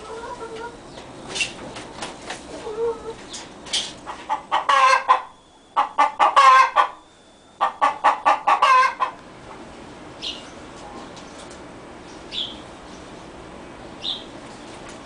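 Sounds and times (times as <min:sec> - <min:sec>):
hen cackling: 0:04.0 - 0:07.0, 0:07.6 - 0:09.2.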